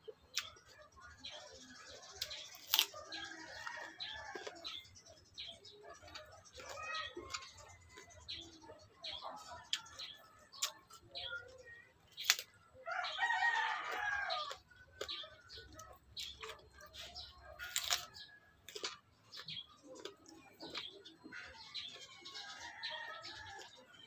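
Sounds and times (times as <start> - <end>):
crunching and chewing chili: 0.0 - 24.0
rooster crowing: 12.9 - 14.5.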